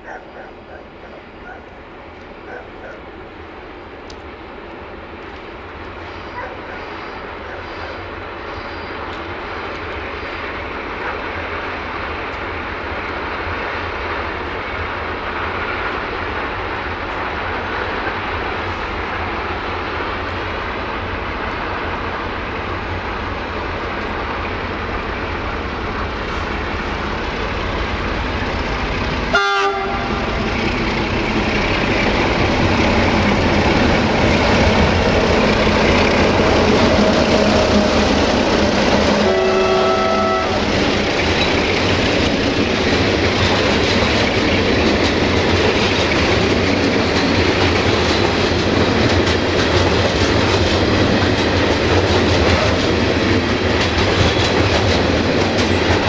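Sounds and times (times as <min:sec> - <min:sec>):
diesel locomotive engine drone: 0:00.0 - 0:56.0
train rail noise: 0:00.0 - 0:56.0
train horn toot: 0:29.3 - 0:30.4, 0:39.1 - 0:40.8.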